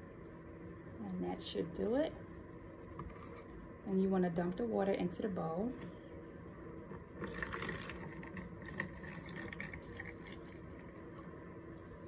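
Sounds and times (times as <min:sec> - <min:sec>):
water splashing and trickling: 0:07.2 - 0:10.8
water pouring into a bowl: 0:07.2 - 0:11.1.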